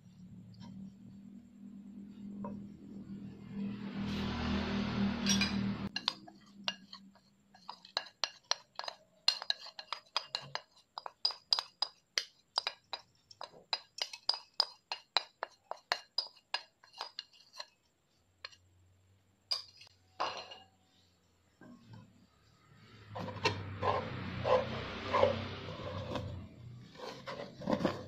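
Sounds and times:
wooden spatula scraping pan: 5.9 - 11.6, 15.4 - 17.8, 23.0 - 28.0.

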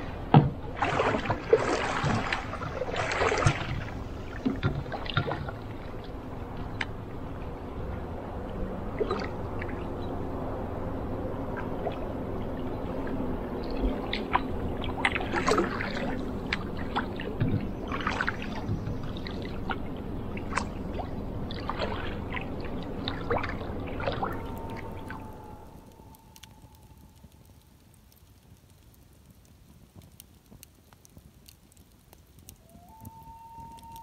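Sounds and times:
paddle strokes in water: 0.0 - 7.6, 11.6 - 27.1
steady low hum: 0.0 - 28.2
water dripping off paddle: 11.6 - 27.6.

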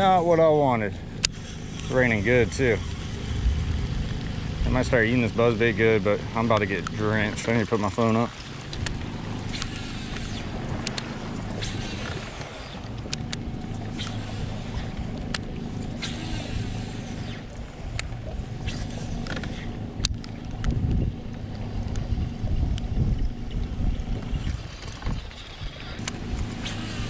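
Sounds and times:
boat engine hum: 0.0 - 27.0
low rumbles: 0.0 - 27.0
heavy rain on water: 2.8 - 14.0.

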